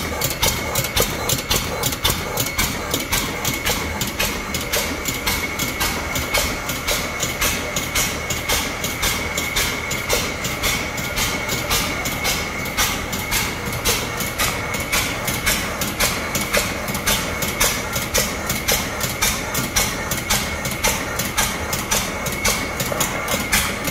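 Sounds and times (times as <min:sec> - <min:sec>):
engine clacking: 0:00.0 - 0:23.9.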